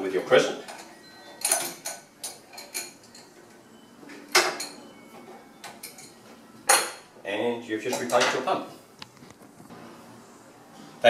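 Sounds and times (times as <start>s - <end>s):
wrench clinking on metal fitting: 0.6s - 3.3s.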